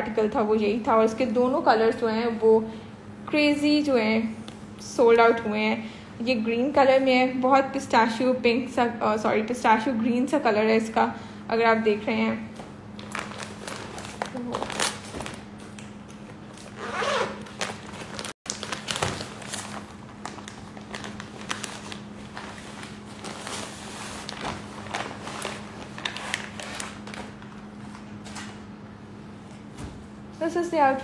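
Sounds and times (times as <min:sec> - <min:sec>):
plastic packaging crinkling: 0:13.0 - 0:28.4.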